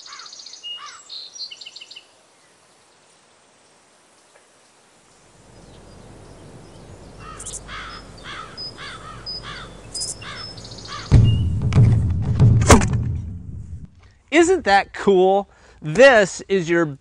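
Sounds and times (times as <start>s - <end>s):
bird calling: 0.0s - 2.0s, 5.4s - 11.6s
faint outdoor background: 0.0s - 17.0s
potato cannon boom: 11.1s - 14.0s.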